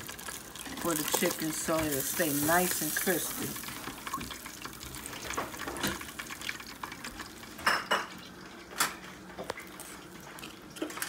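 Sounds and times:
hot oil sizzling: 0:00.0 - 0:11.0.

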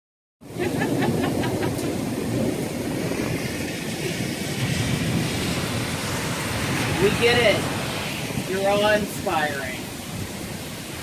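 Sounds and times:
heavy rain pouring: 0:00.4 - 0:11.0
deep thunder rumbling: 0:00.5 - 0:11.0.

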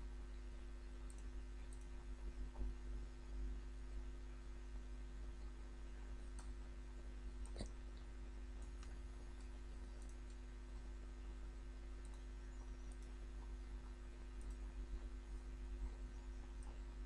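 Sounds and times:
steady low hum: 0:00.0 - 0:17.0
computer mouse clicks: 0:01.1 - 0:02.6, 0:08.6 - 0:10.4, 0:12.0 - 0:13.2, 0:14.4 - 0:14.7, 0:16.5 - 0:16.8.

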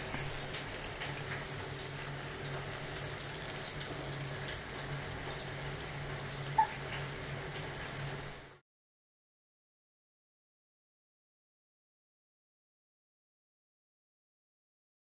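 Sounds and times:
fish sizzling in hot oil: 0:00.0 - 0:08.6.

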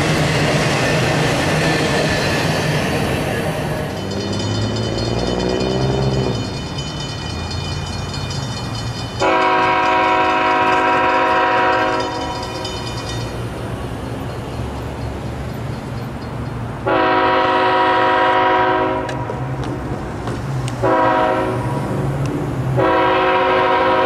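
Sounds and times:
low rumble of train: 0:00.0 - 0:24.0
crossing bells ringing: 0:02.1 - 0:18.6
locomotive horn: 0:09.2 - 0:12.6, 0:16.8 - 0:19.5, 0:20.8 - 0:21.9, 0:22.8 - 0:24.0.

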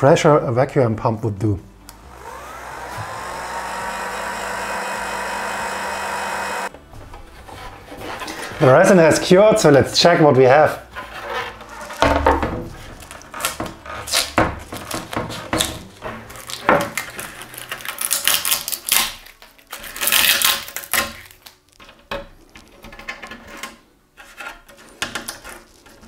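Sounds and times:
tape peeling and ripping: 0:12.8 - 0:21.8.

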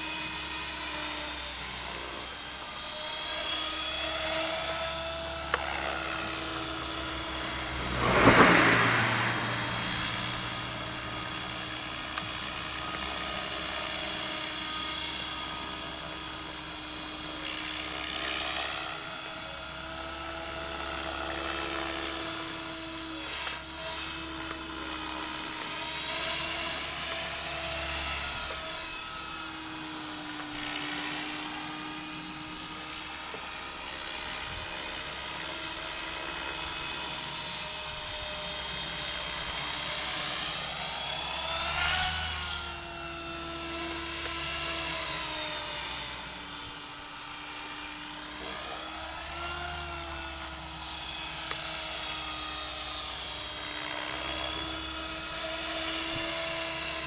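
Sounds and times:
rc helicopter motor whine: 0:00.0 - 0:57.0
rotor noise: 0:05.9 - 0:12.1.

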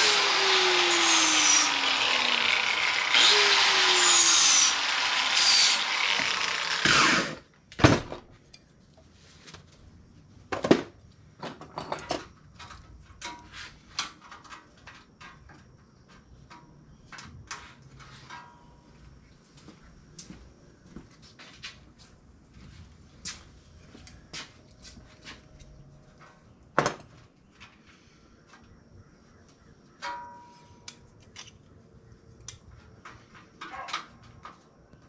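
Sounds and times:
power tool grinding metal: 0:00.0 - 0:07.4
tools knocking and clicking: 0:11.4 - 0:15.7.

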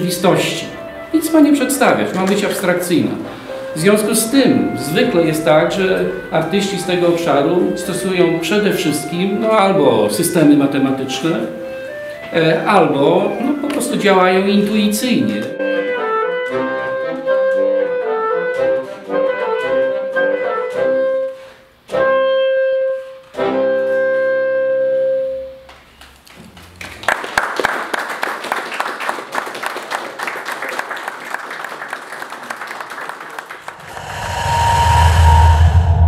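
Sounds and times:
instrumental music with held notes: 0:00.0 - 0:25.7
audience applauding: 0:26.6 - 0:33.9.

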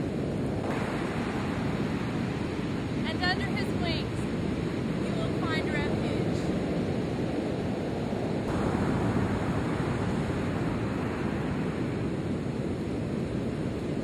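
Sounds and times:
ocean surf washing onto beach: 0:00.0 - 0:14.0
wind rumbling on microphone: 0:00.0 - 0:14.0.

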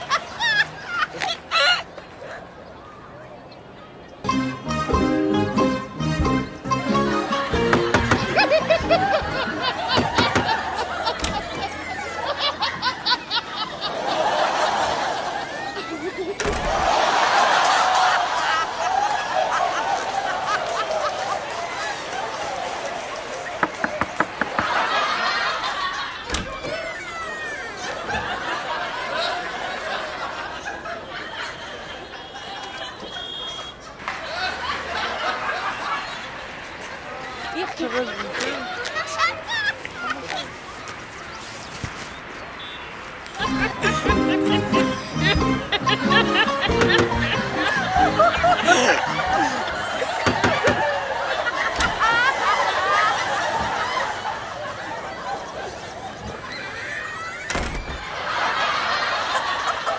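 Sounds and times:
people laughing: 0:00.0 - 0:02.6, 0:04.3 - 0:40.8, 0:43.2 - 0:59.9
people chuckling and chattering: 0:00.0 - 0:59.9
background music: 0:04.3 - 0:09.6, 0:43.5 - 0:49.7.

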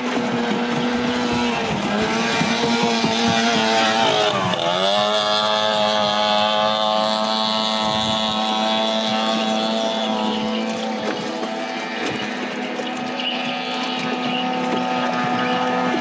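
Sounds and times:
outboard motor running: 0:00.0 - 0:16.0.

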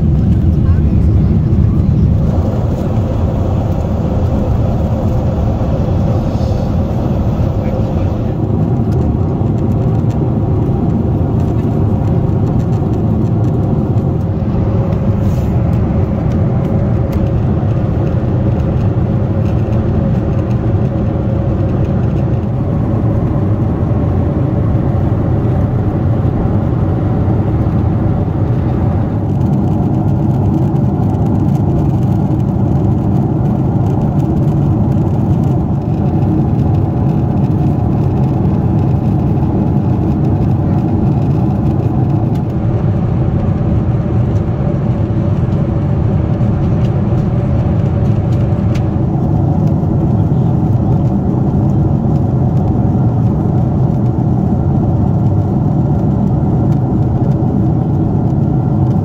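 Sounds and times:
steady cabin hum: 0:00.0 - 0:55.7
jet engines and airflow rushing: 0:00.0 - 0:59.0.

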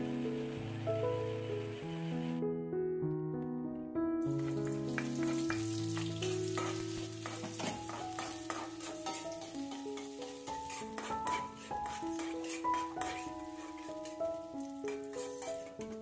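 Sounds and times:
shallots sizzling in oil: 0:00.0 - 0:02.3, 0:04.2 - 0:16.0
background music: 0:00.0 - 0:16.0
metal spatula scraping wok: 0:04.4 - 0:16.0.

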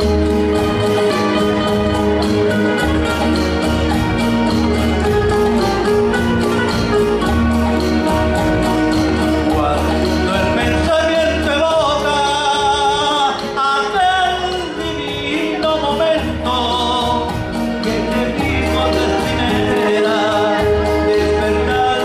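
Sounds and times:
instrumental accompaniment: 0:00.0 - 0:22.0
man singing into microphone: 0:09.4 - 0:22.0.

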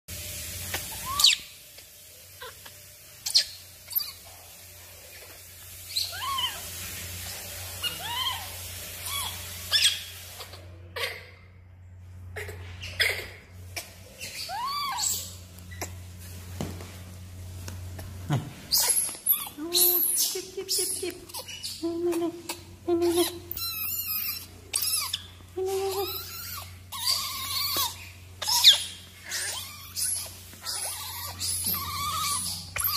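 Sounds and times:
baby monkey cooing calls: 0:00.8 - 0:01.6, 0:02.3 - 0:04.3, 0:05.9 - 0:06.8, 0:07.8 - 0:11.4, 0:12.4 - 0:16.0, 0:18.7 - 0:32.9.

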